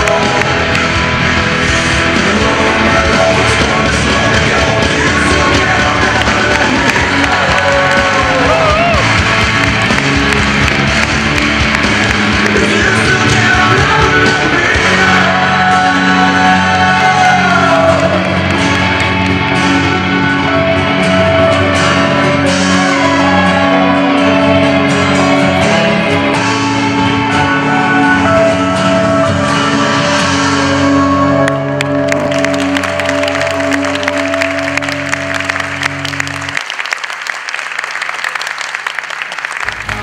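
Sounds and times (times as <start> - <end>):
people clapping: 0.0 - 20.0, 31.4 - 40.0
rock song over sound system: 0.0 - 36.8, 38.9 - 40.0.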